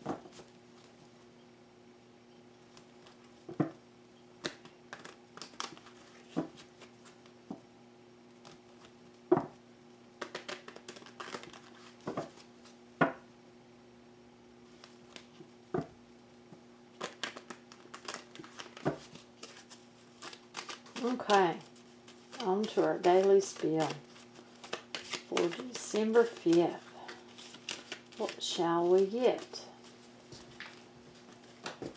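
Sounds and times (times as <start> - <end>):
faint steady hum: 0.0 - 31.9
cards being shuffled: 4.4 - 7.4, 10.2 - 12.8, 17.0 - 31.9.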